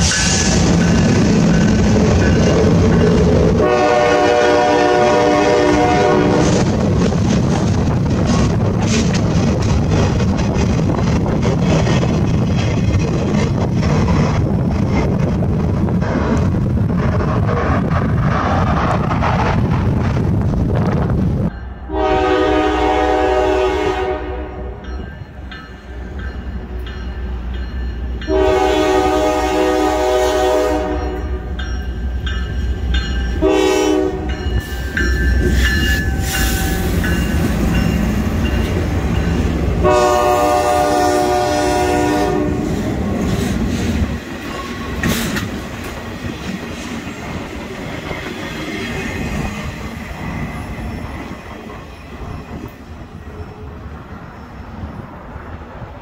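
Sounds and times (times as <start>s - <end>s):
train wheels clattering on rails: 0.0s - 20.3s, 30.6s - 53.5s
train horn blasts: 3.5s - 6.6s, 21.8s - 24.9s, 28.2s - 31.5s, 33.4s - 34.5s, 39.8s - 42.8s.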